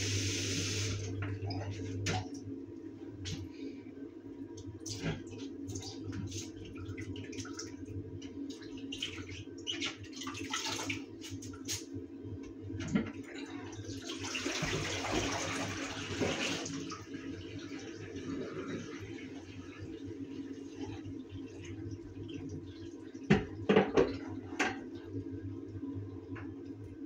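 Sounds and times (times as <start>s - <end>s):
water running into sink: 0.0s - 2.1s, 12.9s - 25.0s
water splashing in sink: 4.8s - 11.9s, 12.8s - 19.9s.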